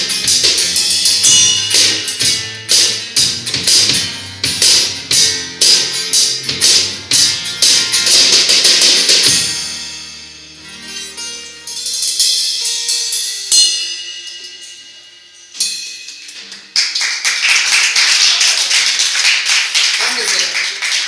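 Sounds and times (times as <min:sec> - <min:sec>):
drum and cymbal hits: 0:00.0 - 0:09.9
live band playing: 0:00.0 - 0:11.4
people clapping: 0:16.4 - 0:21.0.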